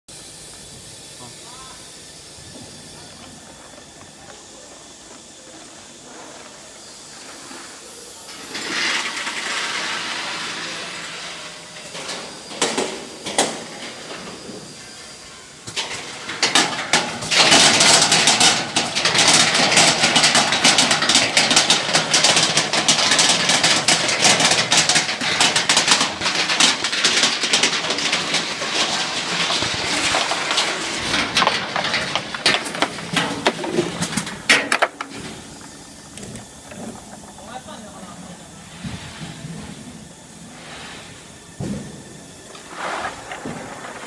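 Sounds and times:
walnuts rattling on steel chutes: 8.3s - 38.7s
steady rushing noise: 32.4s - 44.0s.

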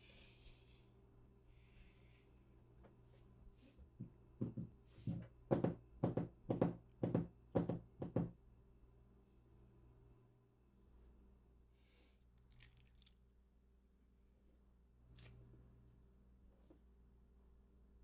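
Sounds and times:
sharp knocks on hard surface: 4.4s - 8.3s.

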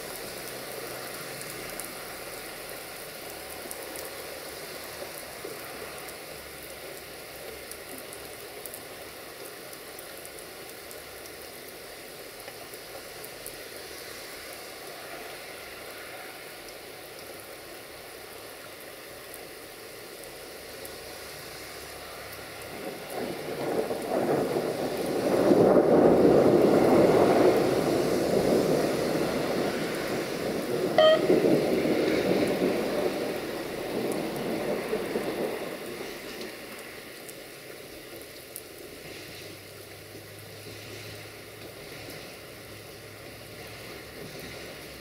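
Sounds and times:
steady rain: 0.0s - 45.0s
short sharp high tone: 31.0s - 31.4s
train engine and wheel noise: 41.5s - 45.0s.

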